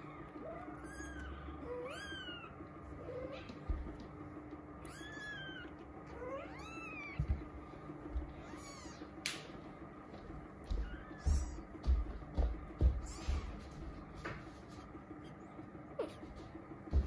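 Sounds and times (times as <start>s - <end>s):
kittens mewing: 0.0s - 3.9s, 4.8s - 7.5s, 8.3s - 9.2s, 15.9s - 16.4s.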